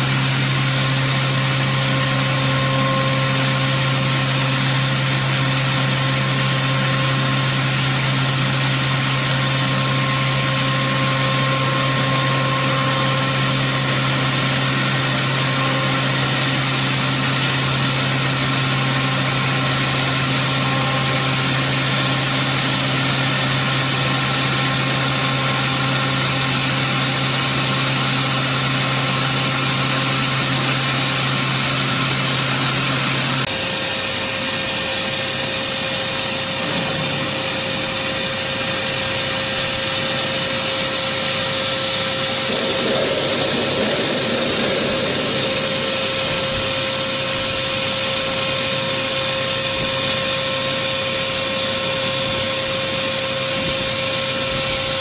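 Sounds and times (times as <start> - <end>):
machine spindle hum: 0.0 - 25.8, 33.5 - 51.8
higher steady machine tone: 0.0 - 28.2, 33.6 - 55.0
dense cutting hiss: 36.4 - 49.2.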